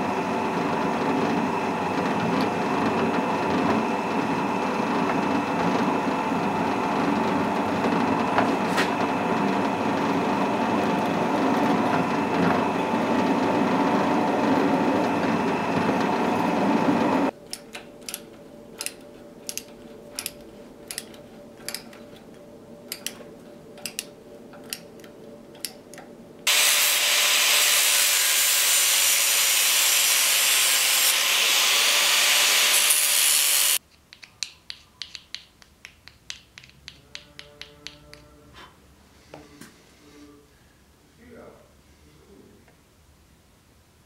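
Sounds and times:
angle grinder grinding steel: 26.5 - 33.8
drill press cutting steel: 26.5 - 33.8.

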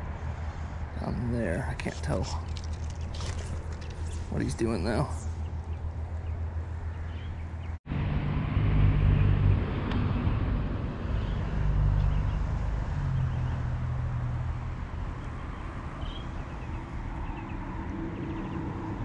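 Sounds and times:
low engine drone: 2.0 - 15.8.

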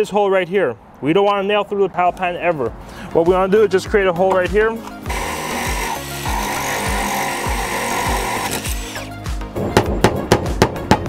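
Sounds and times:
music with steady beat: 3.3 - 11.0
cordless drill grinding whine: 5.1 - 9.1
sharp knocks: 9.7 - 11.0.

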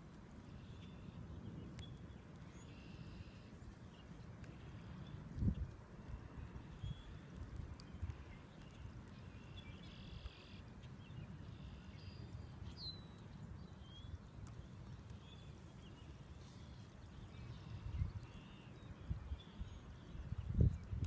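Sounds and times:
wind rumble on microphone: 3.6 - 9.8, 16.9 - 21.0.

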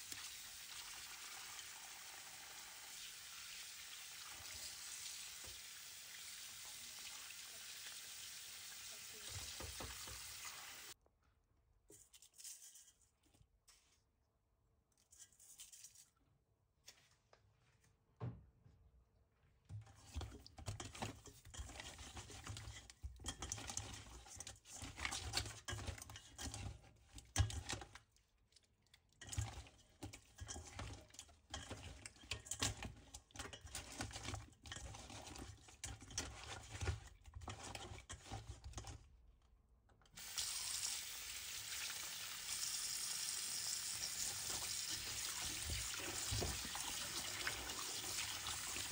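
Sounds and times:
tap water running into bowl: 0.0 - 11.0, 40.2 - 48.9
hands scrubbing fish in a bowl: 15.0 - 16.2, 19.8 - 39.0.

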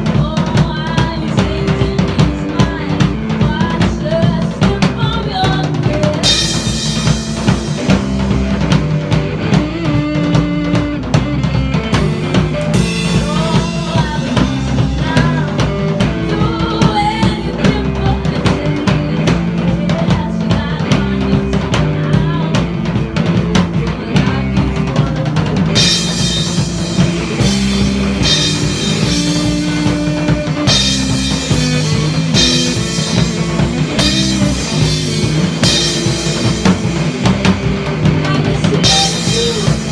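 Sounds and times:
woman singing: 0.0 - 8.0, 9.4 - 39.9
live rock band playing: 0.0 - 39.9.

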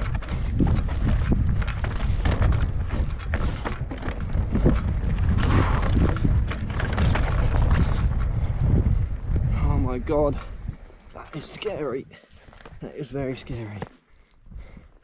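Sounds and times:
bike rattling over rocks: 0.0 - 11.8
wind rumbling on microphone: 0.0 - 13.8, 14.4 - 15.0.

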